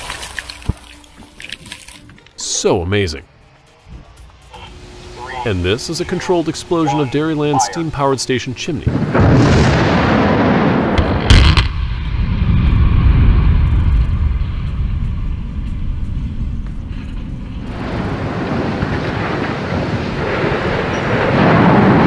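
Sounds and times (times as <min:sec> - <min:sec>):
explosive blast: 0:08.9 - 0:15.4
deep rumble: 0:08.9 - 0:22.0.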